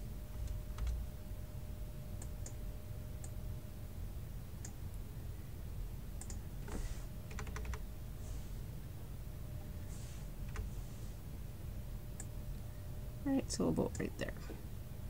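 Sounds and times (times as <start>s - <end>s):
low steady background hum: 0.0s - 15.0s
keyboard keystrokes: 0.4s - 1.0s, 7.3s - 7.8s
computer mouse clicks: 6.2s - 6.4s.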